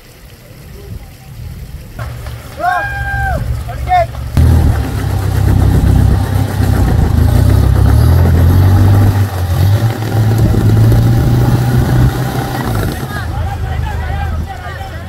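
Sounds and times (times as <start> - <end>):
off-road engine revving: 3.1 - 15.0.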